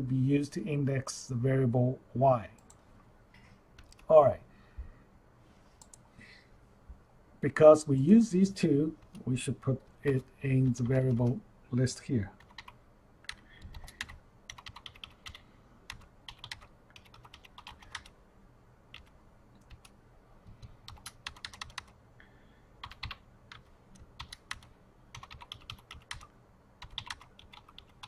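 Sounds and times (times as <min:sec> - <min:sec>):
computer keyboard typing: 0:03.8 - 0:04.1, 0:12.4 - 0:18.1, 0:18.9 - 0:22.0, 0:22.8 - 0:28.0.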